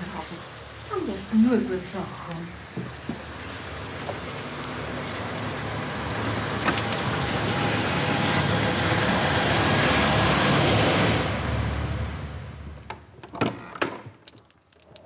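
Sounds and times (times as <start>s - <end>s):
rushing rumbling sound effect: 6.8s - 13.0s.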